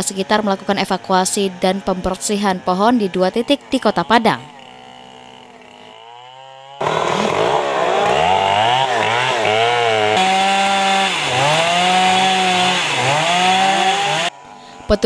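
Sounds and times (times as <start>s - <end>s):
chainsaw cutting wood: 0.0s - 15.0s.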